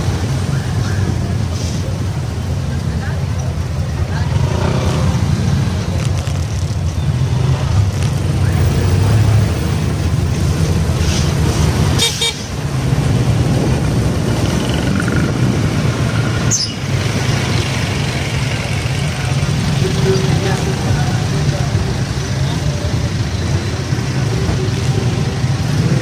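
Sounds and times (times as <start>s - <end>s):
horn toot: 11.9s - 12.6s.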